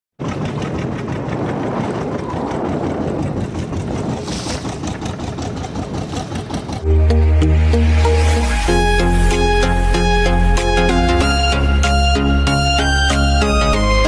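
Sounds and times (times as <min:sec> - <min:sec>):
waves slapping against hull: 0:00.2 - 0:06.9
boat engine running: 0:00.2 - 0:14.0.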